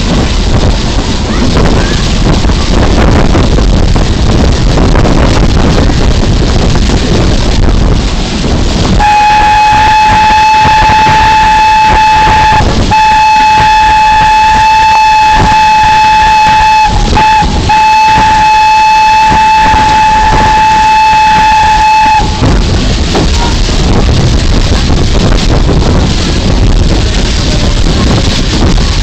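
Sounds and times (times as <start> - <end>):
loud rushing noise: 0.0 - 29.0
steam locomotive whistle: 8.9 - 22.6.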